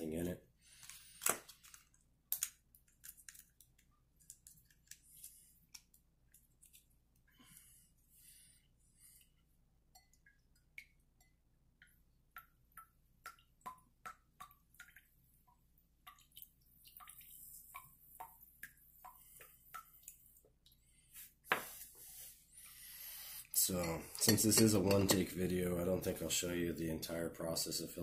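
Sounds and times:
water drops plinking: 9.9 - 15.1
faint air hiss: 21.0 - 24.4.

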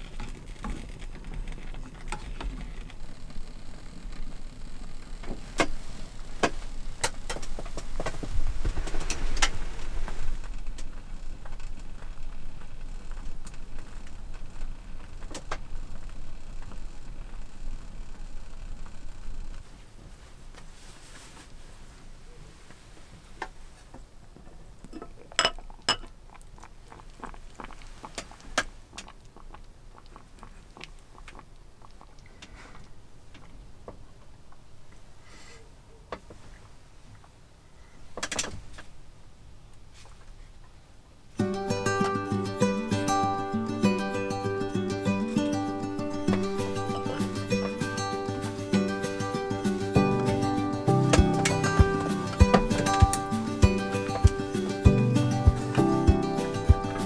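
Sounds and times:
gas burner rumble: 0.0 - 20.2.

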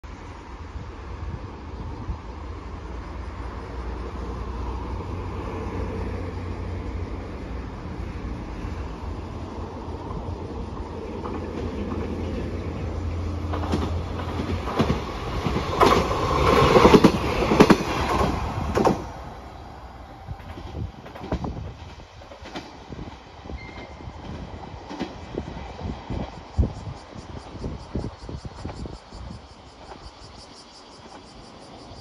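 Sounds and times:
diesel railcar engine drone: 0.0 - 32.0
train wheels clattering on track: 3.9 - 19.6, 20.2 - 32.0.

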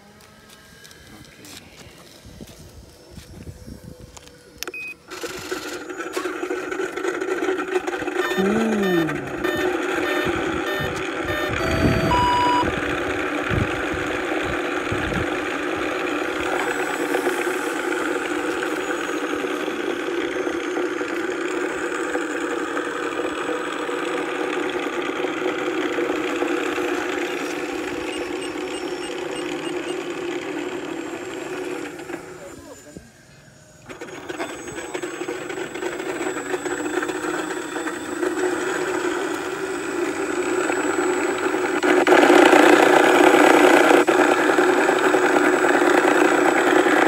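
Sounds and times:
simulated aircraft engine sound: 7.5 - 47.0
electronic beeps: 8.2 - 12.7, 27.7 - 30.1.

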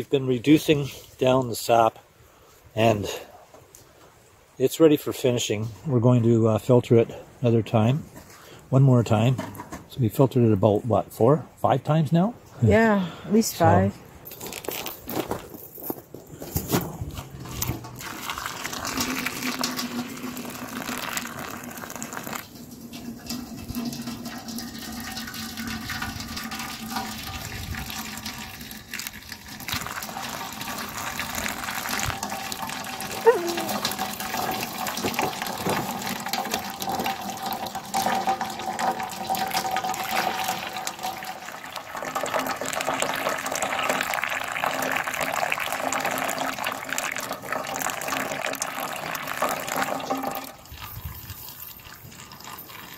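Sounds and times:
syrup trickling into filter: 17.8 - 52.9.

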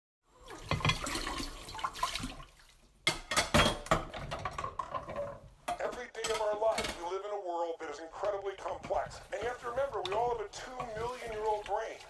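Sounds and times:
water splashing: 0.4 - 2.8, 9.3 - 12.0.

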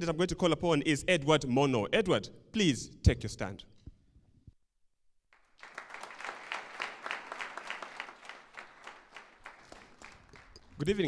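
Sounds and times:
crowd clapping: 5.4 - 11.0.

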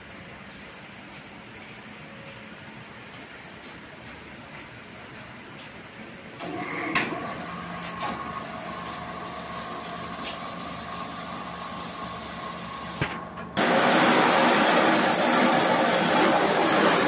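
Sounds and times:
blasting jet hissing: 13.6 - 17.0
high-pressure jet machine running: 13.6 - 17.0.

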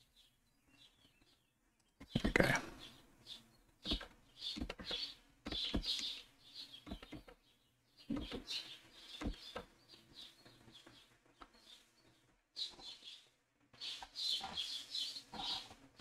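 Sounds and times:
bird chirps: 0.0 - 16.0.

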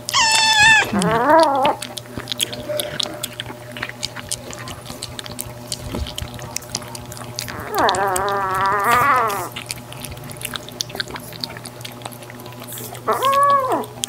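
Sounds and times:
cats meowing: 0.0 - 3.4, 6.0 - 9.8, 12.9 - 14.0
cats eating from bowls: 0.0 - 14.0.

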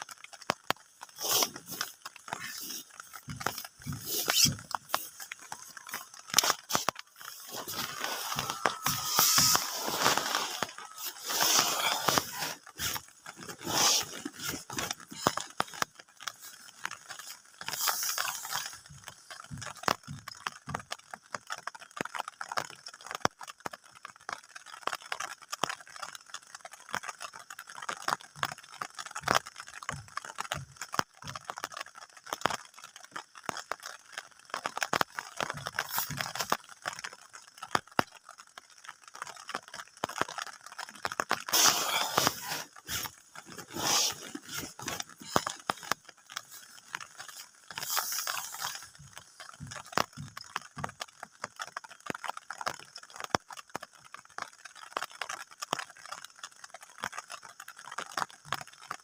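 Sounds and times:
fabric rustling and scraping: 1.1 - 18.8, 41.3 - 49.8.

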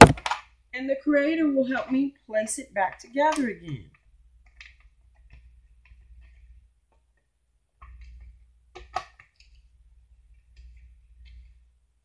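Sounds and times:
plastic bricks clicking together: 0.0 - 0.5
sharp plastic snap: 0.0 - 0.5.

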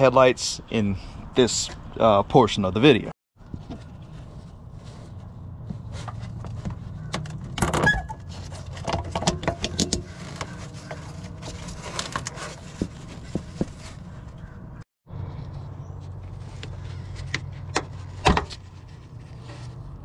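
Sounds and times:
rubber rubbing: 10.0 - 14.6.

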